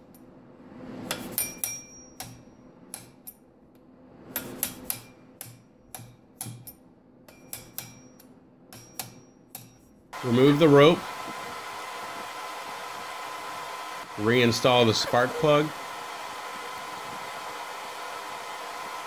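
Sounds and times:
hammer tapping steel punch: 1.1 - 3.4, 4.4 - 9.9.

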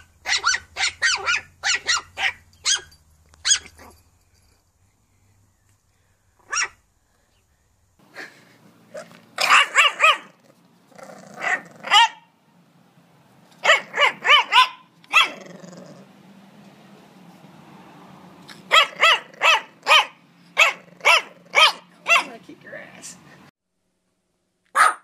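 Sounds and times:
puppy barking high-pitched: 0.0 - 4.0, 6.4 - 6.8, 8.9 - 10.4, 11.3 - 12.3, 13.6 - 15.6, 18.6 - 22.4, 24.7 - 25.0.

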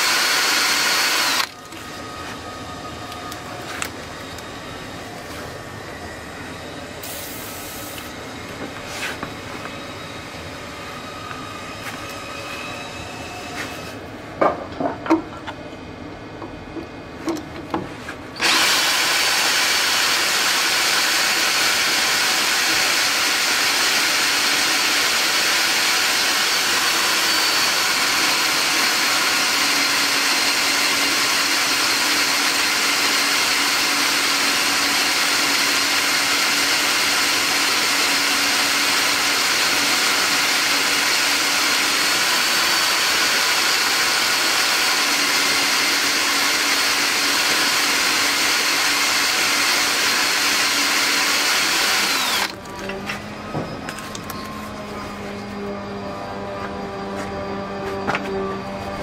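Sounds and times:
power drill under load: 0.0 - 1.6, 18.4 - 53.1.

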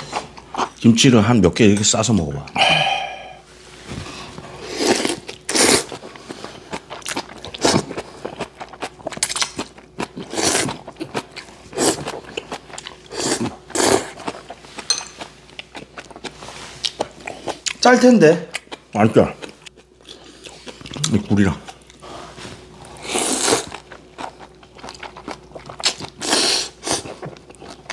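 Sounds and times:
man slurping noodles: 4.6 - 5.9, 23.0 - 23.7
chewing: 4.8 - 17.8, 18.5 - 27.9.

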